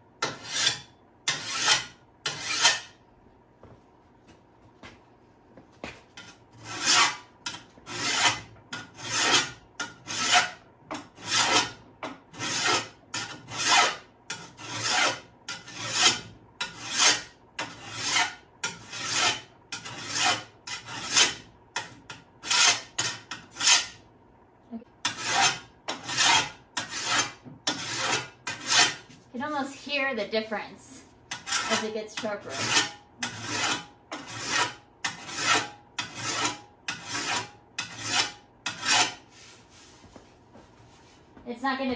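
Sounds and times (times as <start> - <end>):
file sharpening shovel blade: 0.2 - 2.9, 6.2 - 24.0, 25.0 - 29.1, 31.3 - 39.5.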